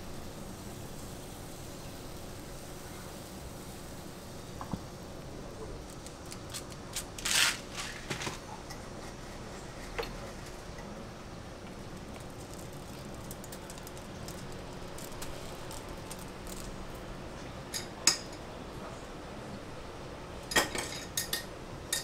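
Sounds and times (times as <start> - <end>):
kitchen hum: 0.0 - 22.0
cereal rings dropping onto batter: 12.0 - 16.9.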